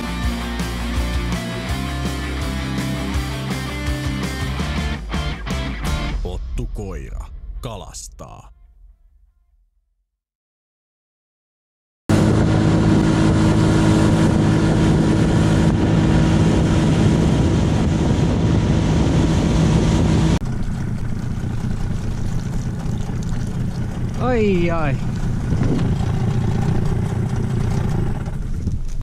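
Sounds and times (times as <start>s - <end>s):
outboard motor running: 0.0s - 5.1s, 12.1s - 29.0s
water rushing: 12.1s - 28.1s
wind: 12.1s - 29.0s.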